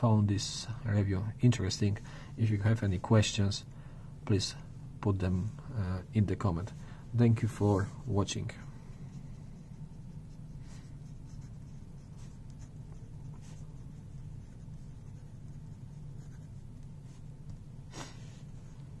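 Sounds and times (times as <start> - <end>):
steady low hum: 0.0 - 19.0
pen nib scratching on paper: 9.1 - 17.7.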